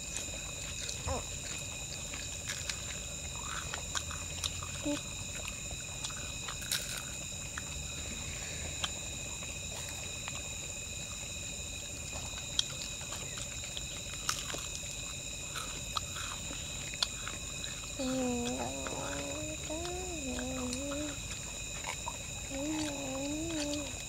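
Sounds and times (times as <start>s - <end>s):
night insects chorus: 0.0s - 24.0s
people eating with hands: 0.0s - 24.0s.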